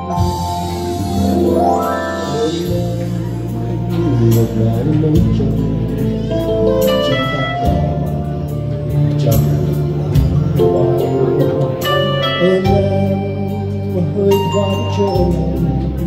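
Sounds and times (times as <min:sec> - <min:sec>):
electronic keyboard ballad: 0:00.0 - 0:16.0
rising run of high notes: 0:01.2 - 0:03.0.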